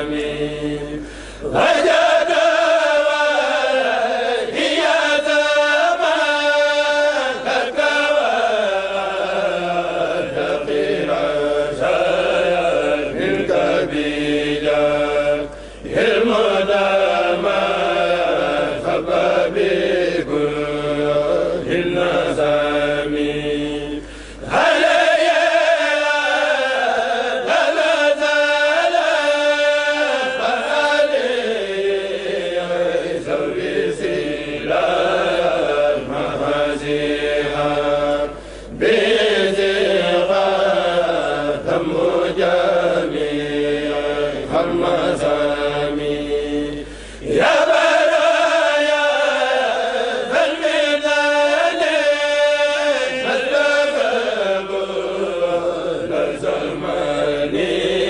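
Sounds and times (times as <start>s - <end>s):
men chanting together: 0.0s - 58.0s
breaths: 1.0s - 1.5s, 15.5s - 15.9s, 24.0s - 24.5s, 38.3s - 38.8s, 46.8s - 47.3s.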